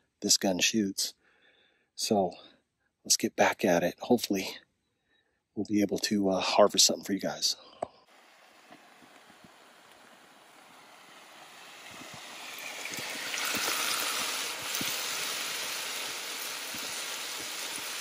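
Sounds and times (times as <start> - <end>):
meat sizzling in a frying pan: 8.4 - 18.0.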